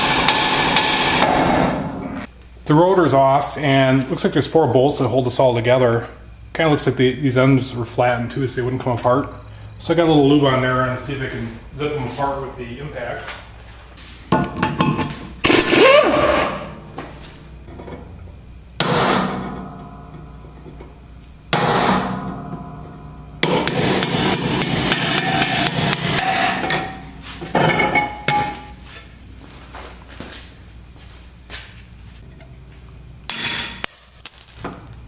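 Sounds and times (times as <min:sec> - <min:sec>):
impact wrench hammering: 0:00.0 - 0:01.9, 0:14.3 - 0:16.7, 0:18.8 - 0:20.9, 0:21.5 - 0:28.8, 0:33.3 - 0:35.0.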